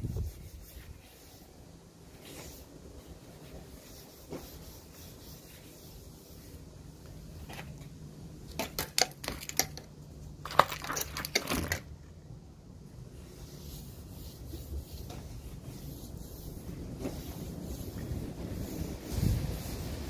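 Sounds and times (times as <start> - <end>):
cloth rubbing on wooden handle: 0.0 - 6.7, 13.2 - 20.0.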